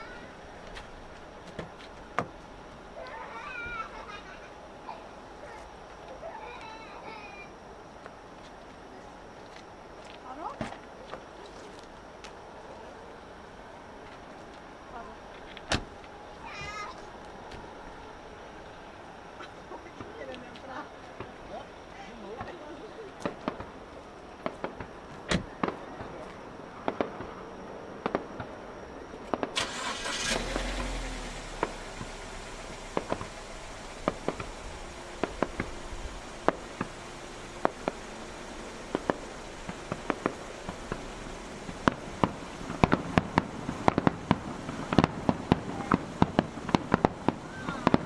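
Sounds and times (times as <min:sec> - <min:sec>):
fireworks exploding: 0:22.3 - 0:27.4, 0:28.0 - 0:28.6, 0:29.2 - 0:29.6, 0:31.5 - 0:48.0
rushing firework burst: 0:29.3 - 0:48.0.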